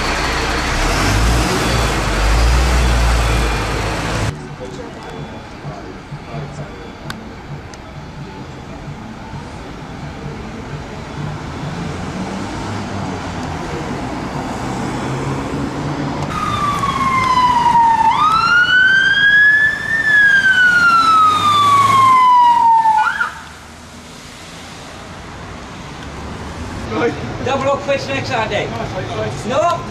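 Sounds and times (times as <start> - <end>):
vehicle engine: 0.0 - 22.4, 23.3 - 29.9
traffic noise: 0.0 - 29.9
siren chirp: 16.3 - 23.5
siren wailing: 16.3 - 23.6.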